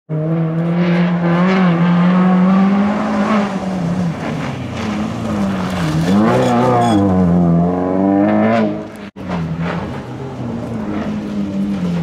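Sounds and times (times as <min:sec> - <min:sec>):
car engine revving hard: 0:00.1 - 0:09.0.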